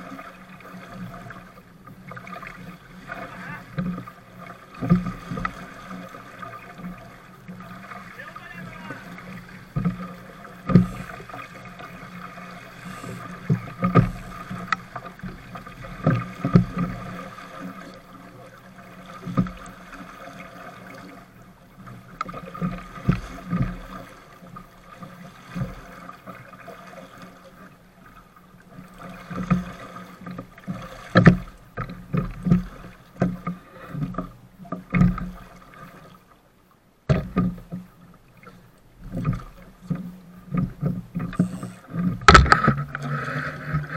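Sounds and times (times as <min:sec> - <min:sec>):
rushing water: 0:00.0 - 0:43.9
waves slapping against hull: 0:00.0 - 0:43.9
knocks on boat: 0:10.6 - 0:11.1, 0:31.1 - 0:33.4, 0:37.1 - 0:37.8, 0:39.2 - 0:43.1.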